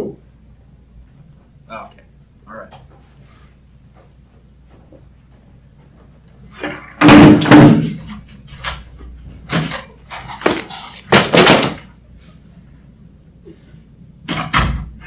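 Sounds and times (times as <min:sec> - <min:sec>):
door slamming shut: 0:07.0 - 0:08.0, 0:14.3 - 0:15.0.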